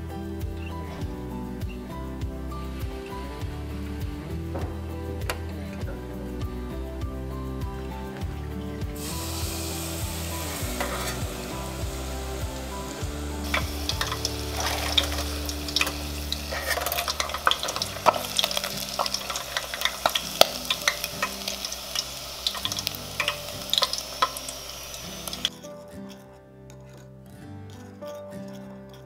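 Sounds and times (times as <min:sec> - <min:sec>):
deep-frying sizzle: 0:08.9 - 0:25.5
metal skimmer scraping pot: 0:09.0 - 0:27.2.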